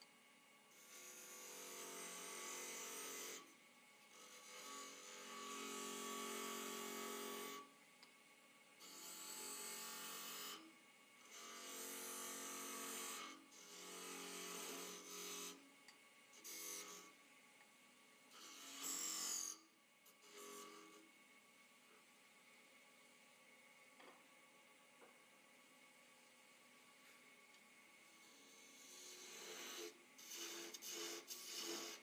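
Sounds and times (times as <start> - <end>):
chisel cutting wood on lathe: 4.1 - 7.6, 11.2 - 15.6, 18.3 - 19.6, 28.2 - 32.0.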